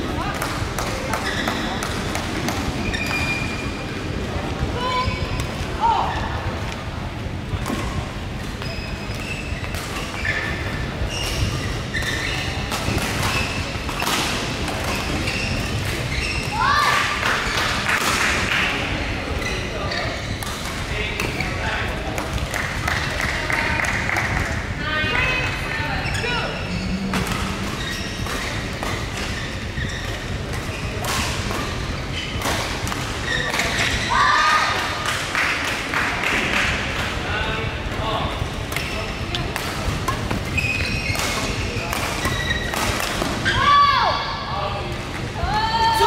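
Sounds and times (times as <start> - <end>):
low hall rumble: 0.0 - 46.0
shoes squeaking on court mat: 0.8 - 3.9, 8.4 - 17.7, 19.3 - 21.6, 26.0 - 34.3, 38.7 - 43.7
indoor hall low rumble: 21.9 - 29.1.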